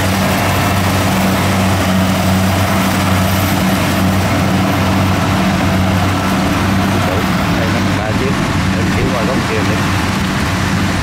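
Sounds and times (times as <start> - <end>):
dense rushing machine noise: 0.0 - 11.0
engine low drone: 0.0 - 11.0.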